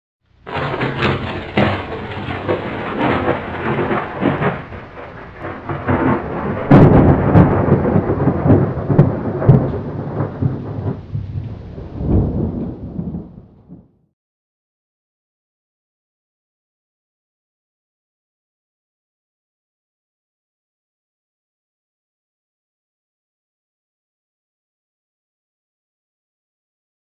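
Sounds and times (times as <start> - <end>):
rumbling crackling sound effect: 0.3 - 14.0
sharp loud crack: 0.4 - 11.4.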